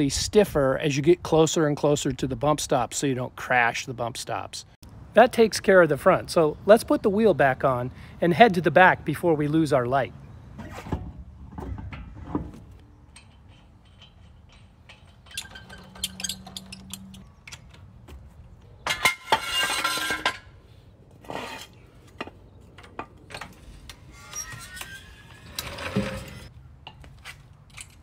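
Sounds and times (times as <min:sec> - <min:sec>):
metal lug nuts clinking: 0:11.0 - 0:20.6.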